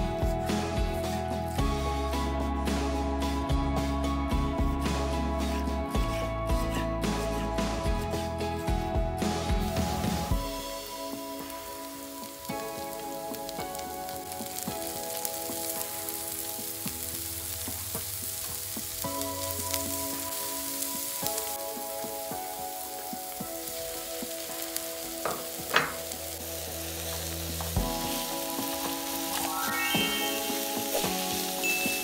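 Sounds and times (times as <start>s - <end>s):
soft background music: 0.0s - 32.0s
vegetables sizzling in a pan: 9.8s - 32.0s.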